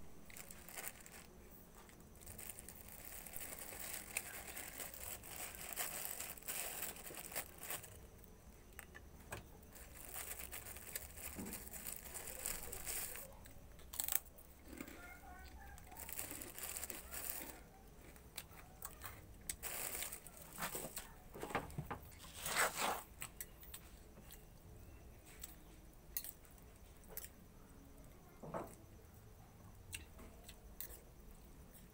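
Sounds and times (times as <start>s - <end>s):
plastic bag crinkling: 0.2s - 8.0s, 9.7s - 17.6s, 18.9s - 21.1s.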